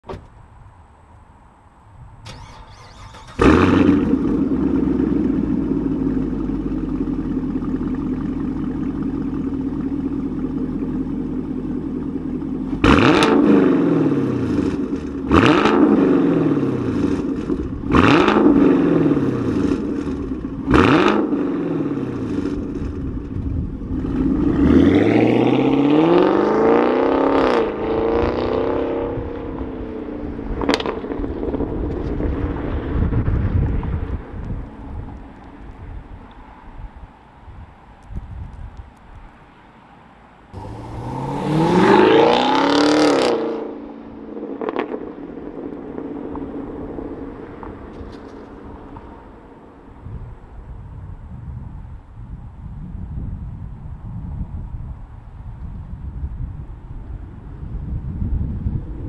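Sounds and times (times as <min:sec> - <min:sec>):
engine throttle blips: 0:02.2 - 0:11.0, 0:40.6 - 0:43.3
car engine idling: 0:02.3 - 0:12.8, 0:40.6 - 0:41.8.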